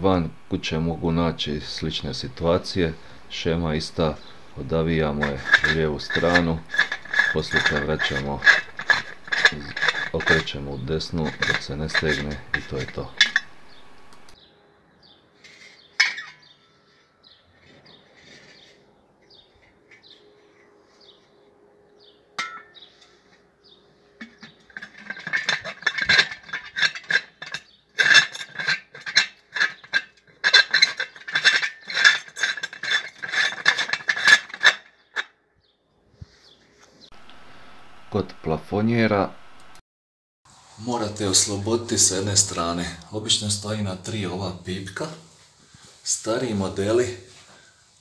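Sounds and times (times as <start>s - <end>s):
glass thread scraping on metal: 1.5s - 14.4s, 24.5s - 35.1s
glass clink: 22.4s - 22.8s.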